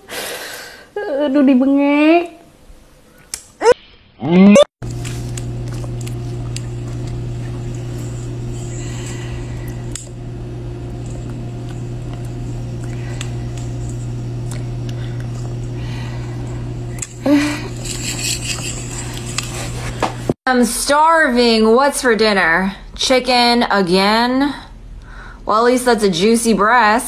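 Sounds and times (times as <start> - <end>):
steady low hum: 4.8 - 20.4.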